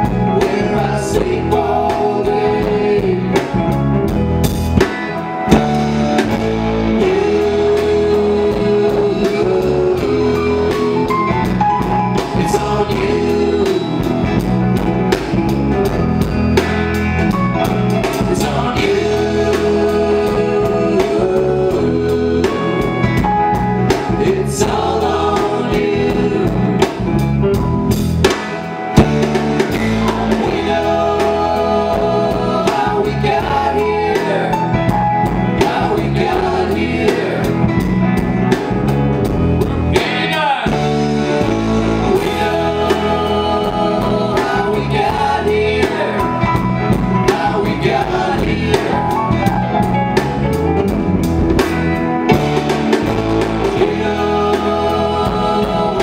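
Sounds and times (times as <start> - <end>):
man singing lead: 0.0 - 3.8, 5.5 - 15.4, 17.6 - 27.3, 29.0 - 38.0, 39.7 - 49.9, 52.3 - 56.0
live rock band playing: 0.0 - 56.0.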